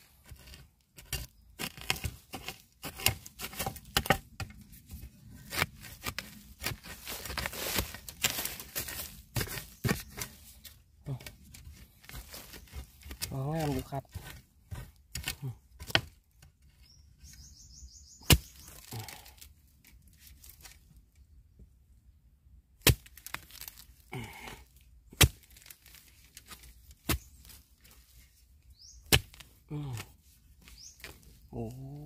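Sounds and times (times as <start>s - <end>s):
bamboo shoot cracking: 0.2s - 16.8s, 18.2s - 21.2s, 22.8s - 32.0s
bird chirping: 16.7s - 19.1s, 28.7s - 29.2s, 30.6s - 32.0s.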